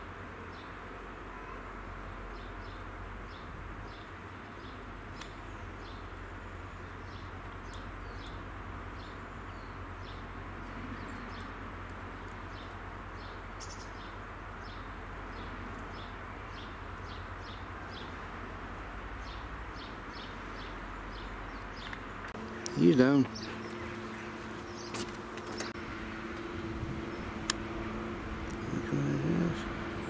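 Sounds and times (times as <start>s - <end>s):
small birds chirping: 0.4s - 30.0s
diesel train rumbling: 22.4s - 30.0s.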